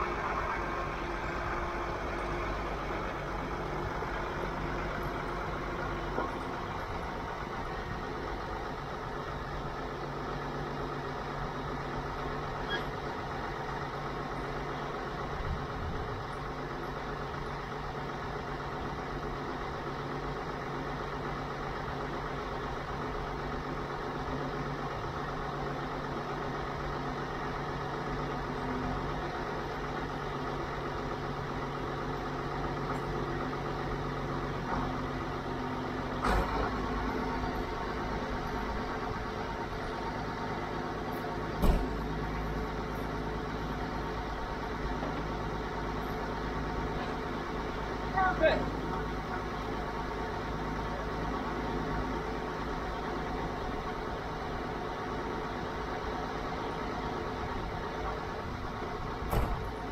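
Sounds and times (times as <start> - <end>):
farm machinery humming: 0.0 - 59.9
grain auger droning: 0.0 - 59.9
loud machine clunk: 36.2 - 37.0, 41.5 - 42.2, 59.2 - 59.9.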